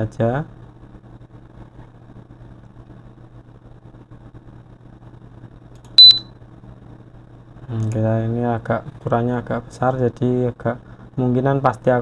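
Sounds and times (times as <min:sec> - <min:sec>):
low electrical hum: 0:00.0 - 0:12.0
high-pitched electronic beep: 0:06.0 - 0:06.3.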